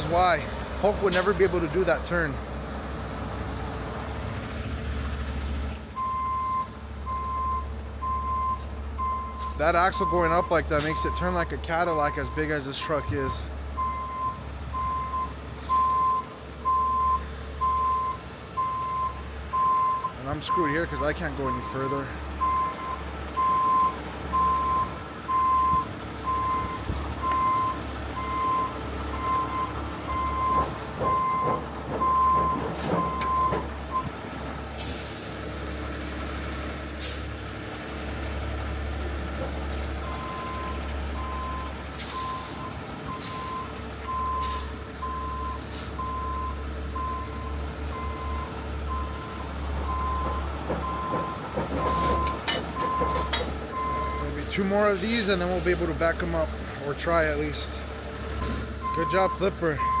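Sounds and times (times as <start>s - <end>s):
diesel engine rumble: 0.0s - 60.0s
truck reverse alarm beeping: 0.0s - 60.0s
air brake hisses: 34.8s - 35.4s, 37.0s - 37.3s, 42.0s - 43.4s, 44.4s - 44.8s, 54.9s - 56.0s.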